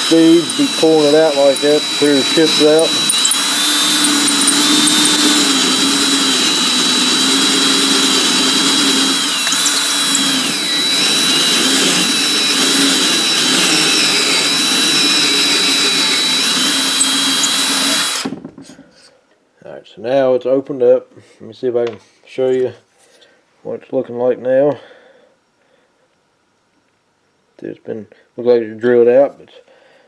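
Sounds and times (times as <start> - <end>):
drill motor whining: 0.0 - 18.4.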